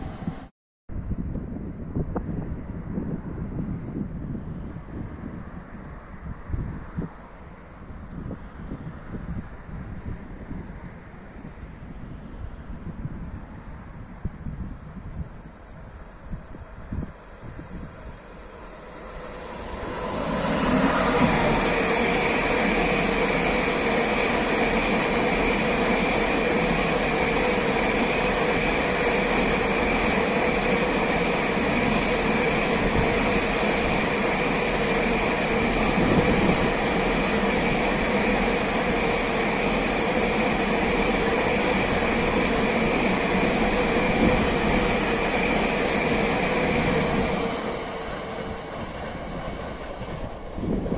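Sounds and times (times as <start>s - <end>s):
constant whine: 14.0s - 50.9s
train wagons rolling past: 15.4s - 50.9s.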